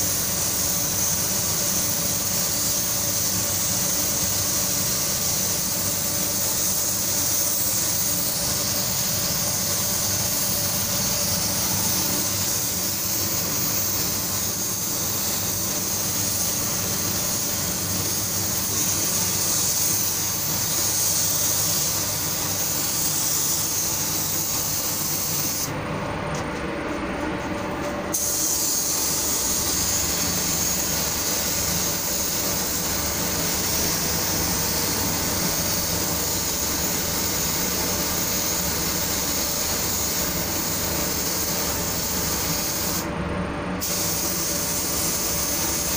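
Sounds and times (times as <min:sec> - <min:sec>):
paint spray gun hissing: 0:00.0 - 0:25.7, 0:28.1 - 0:43.1, 0:43.8 - 0:45.9.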